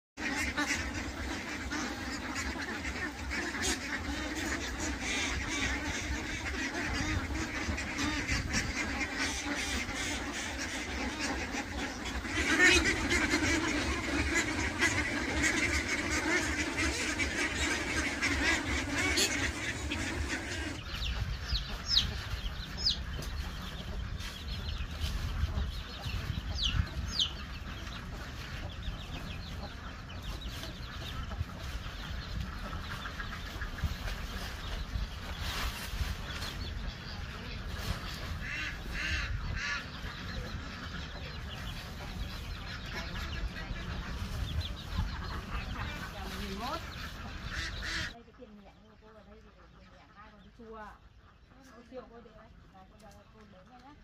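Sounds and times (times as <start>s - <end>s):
ducks quacking: 0.2s - 54.0s.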